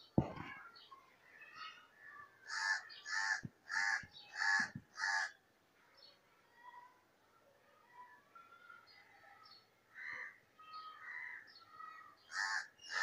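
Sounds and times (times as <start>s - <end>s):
crow cawing: 2.5s - 5.4s, 12.3s - 13.0s.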